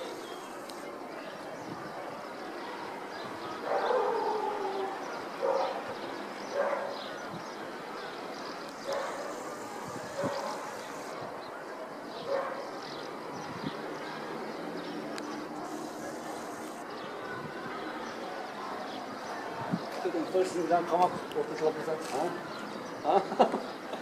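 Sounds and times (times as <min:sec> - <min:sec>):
street and traffic noise: 0:00.0 - 0:24.0
dog barking: 0:03.6 - 0:04.4, 0:05.4 - 0:05.8, 0:06.5 - 0:07.0, 0:08.8 - 0:09.4, 0:10.1 - 0:10.8, 0:12.2 - 0:12.7.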